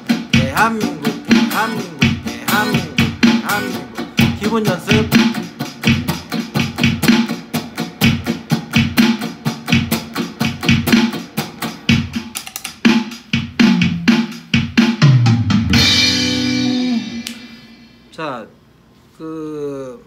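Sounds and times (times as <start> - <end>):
electric guitar strumming: 0.0 - 12.2, 15.7 - 18.1.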